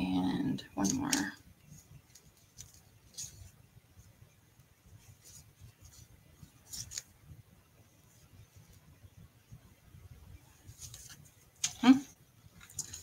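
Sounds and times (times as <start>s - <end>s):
fingers tying cord rustling: 0.7s - 3.7s, 4.6s - 7.2s, 10.5s - 13.0s.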